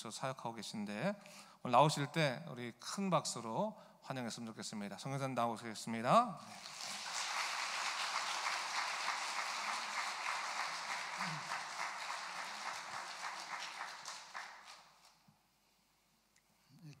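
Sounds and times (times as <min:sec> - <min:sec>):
crowd applauding: 0:06.5 - 0:15.2.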